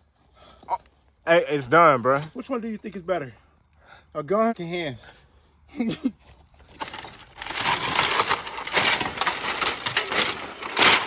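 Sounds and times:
plastic and glass debris crunching: 6.4s - 11.0s.

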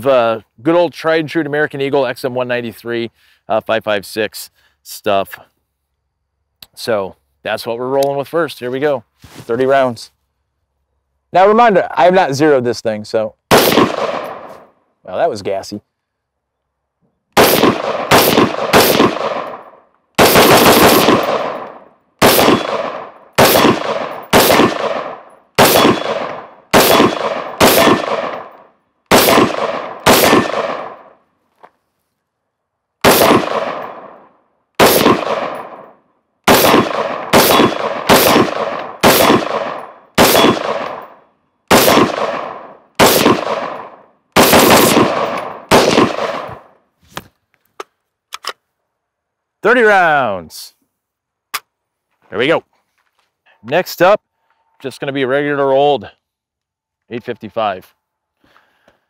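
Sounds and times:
rifle shots: 13.5s - 14.6s, 17.4s - 31.2s, 33.0s - 46.8s.

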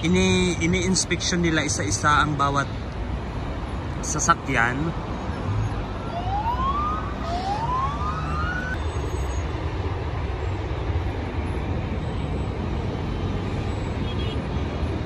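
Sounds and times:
road traffic: 0.0s - 15.0s
police siren whoops: 6.0s - 8.8s.

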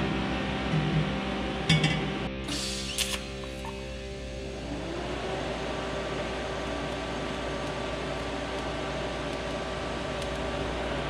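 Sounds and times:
low hum: 0.0s - 11.0s
welding arc hiss: 2.4s - 11.0s.

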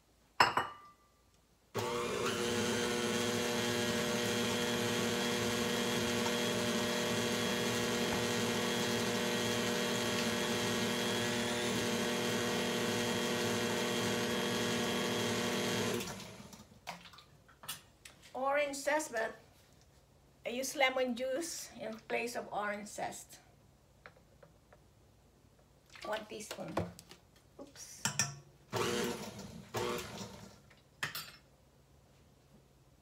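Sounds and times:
stand mixer motor running: 1.8s - 16.5s, 28.8s - 30.4s.

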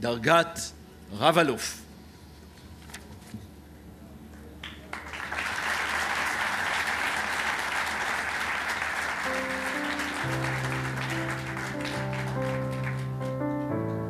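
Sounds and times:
audience applause: 4.7s - 13.8s.

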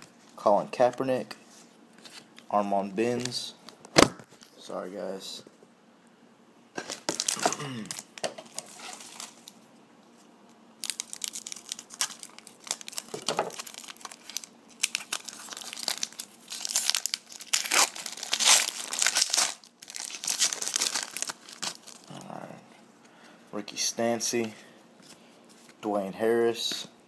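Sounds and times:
foil wrapper crinkling and tearing: 6.8s - 9.6s, 10.8s - 22.2s.

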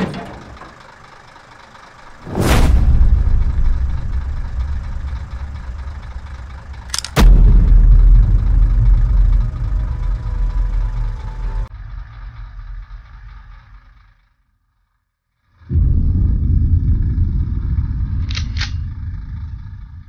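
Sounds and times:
deep rumble: 2.1s - 14.7s, 15.5s - 20.0s
sharp bang: 2.3s - 11.7s.

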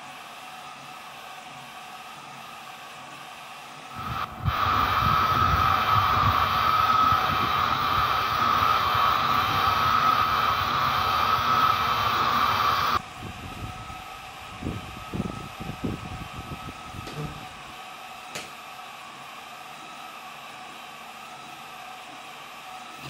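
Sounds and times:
laser engraver whirring: 3.9s - 22.0s.

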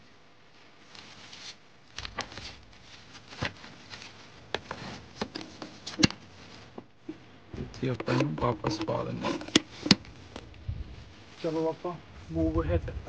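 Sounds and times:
paper rustling and crinkling: 0.7s - 6.8s.

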